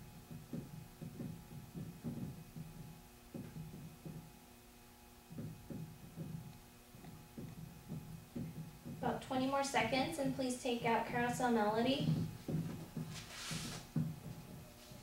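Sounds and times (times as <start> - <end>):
faint steady hum: 0.0 - 15.0
thuds of keyboard keys pressed: 0.2 - 4.2, 5.3 - 9.0.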